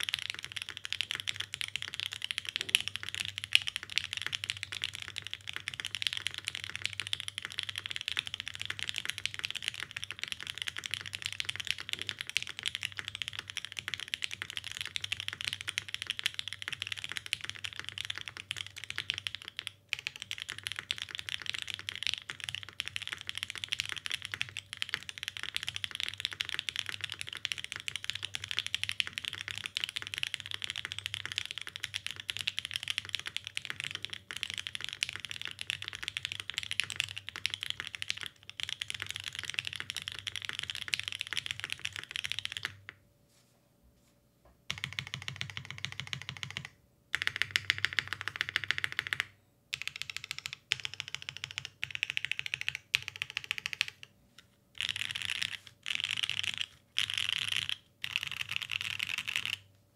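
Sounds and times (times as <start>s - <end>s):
mechanical keyboard typing: 0.0s - 43.0s, 44.7s - 54.1s, 54.8s - 59.6s.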